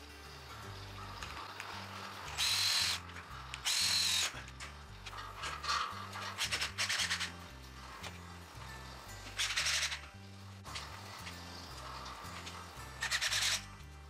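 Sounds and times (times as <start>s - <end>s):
background music: 0.0s - 14.0s
cordless drill whining: 0.9s - 10.0s.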